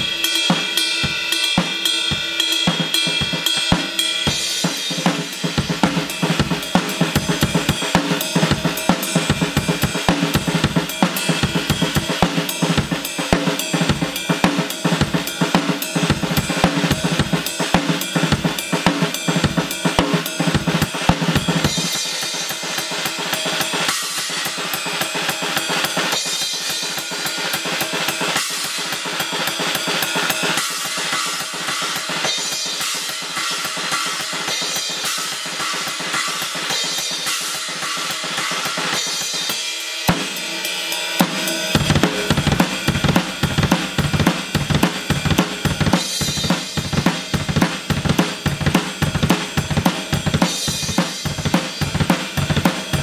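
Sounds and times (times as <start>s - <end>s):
drums and cymbals: 0.0s - 53.0s
bass drum beats: 2.7s - 22.0s, 41.2s - 53.0s.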